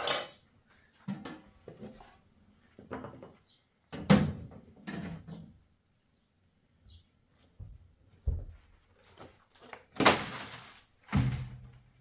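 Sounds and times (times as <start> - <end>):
metal pots and lids clanking: 0.0 - 0.4.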